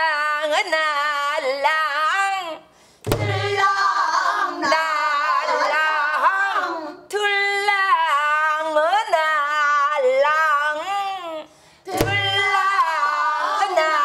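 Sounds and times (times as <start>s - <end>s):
woman singing in strong voice: 0.0s - 14.0s
drumstick knocking drum rim: 3.1s - 3.4s, 12.0s - 12.4s.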